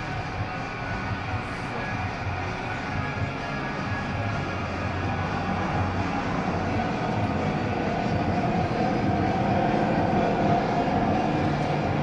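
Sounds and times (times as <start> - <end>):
motorcycle engines droning: 0.0 - 12.0.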